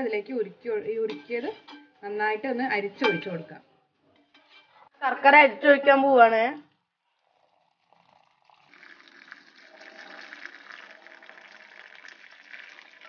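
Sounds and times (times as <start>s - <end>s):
syrup trickling: 7.1s - 13.0s.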